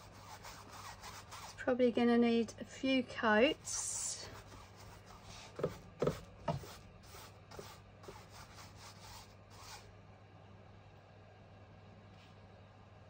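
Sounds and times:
paintbrush rubbing on canvas: 0.0s - 1.6s, 3.7s - 9.9s.

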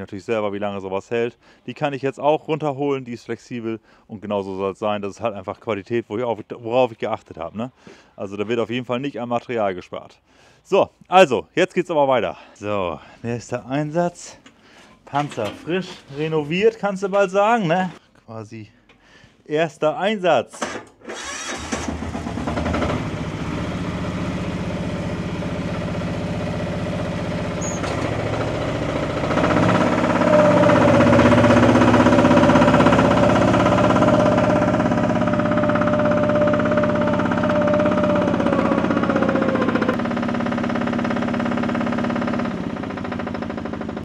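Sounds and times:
hydraulic pump whine: 21.1s - 44.0s
small diesel engine running: 21.1s - 44.0s.

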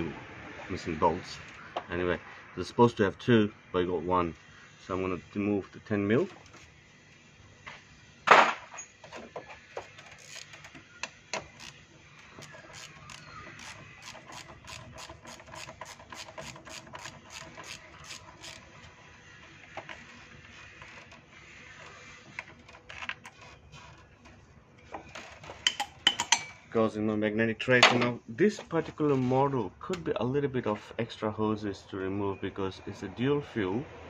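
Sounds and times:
hand ratchet clicking: 10.0s - 10.8s, 11.4s - 18.7s.

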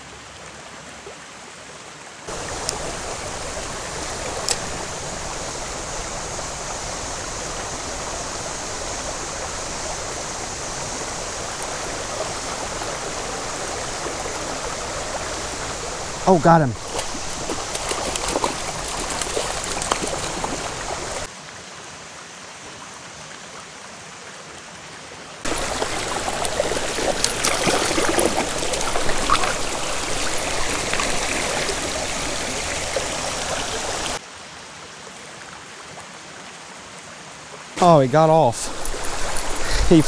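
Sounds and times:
creek water running: 0.0s - 40.0s
fish thrashing and splashing: 16.8s - 21.3s, 25.5s - 34.2s, 38.6s - 40.0s.

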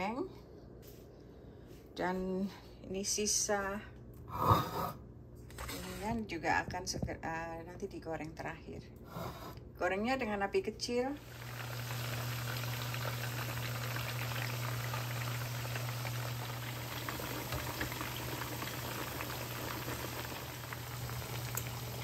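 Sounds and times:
low steady hum: 0.0s - 22.0s
chicken deep-frying in oil: 11.2s - 22.0s.

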